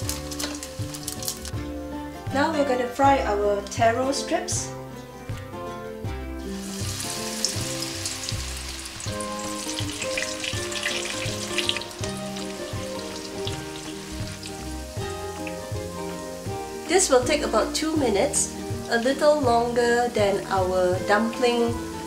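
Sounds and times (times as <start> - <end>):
deep-frying sizzle and crackle: 0.0 - 1.6, 6.4 - 22.0
light background music: 0.0 - 22.0.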